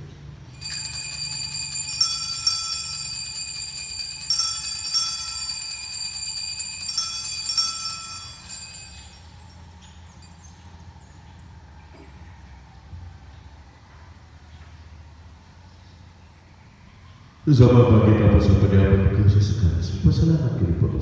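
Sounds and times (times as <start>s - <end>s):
small bells ringing: 0.5s - 10.7s.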